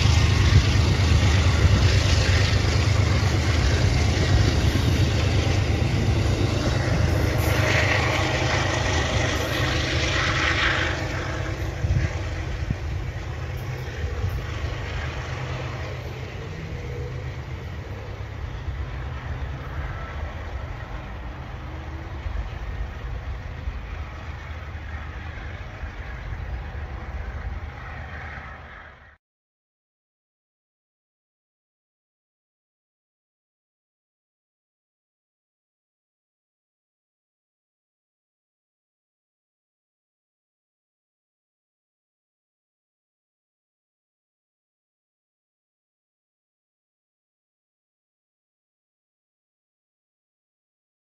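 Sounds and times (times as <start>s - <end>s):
train wheels rumbling on track: 0.0s - 29.2s.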